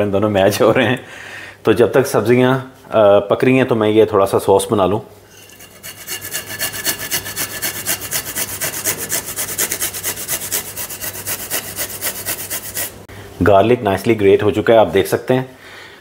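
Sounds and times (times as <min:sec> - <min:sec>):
garlic grating on a grater: 0:05.4 - 0:13.0.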